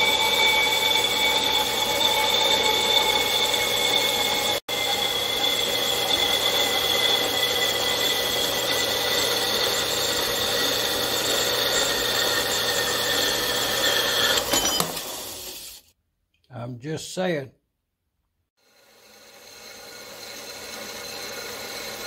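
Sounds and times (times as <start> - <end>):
bandsaw cutting metal: 0.0 - 15.9, 18.6 - 22.0.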